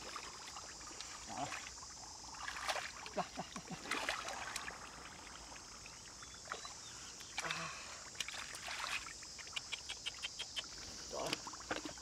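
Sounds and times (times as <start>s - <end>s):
hands splashing in muddy water: 3.8s - 4.9s, 7.4s - 10.2s.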